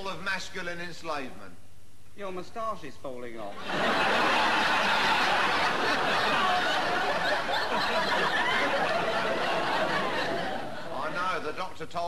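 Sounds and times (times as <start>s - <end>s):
audience laughter: 3.6s - 11.6s.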